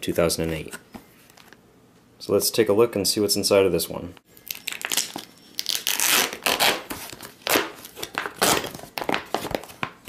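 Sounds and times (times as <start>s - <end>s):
plastic pouch tearing: 4.4s - 9.9s
plastic crinkling: 4.4s - 10.0s.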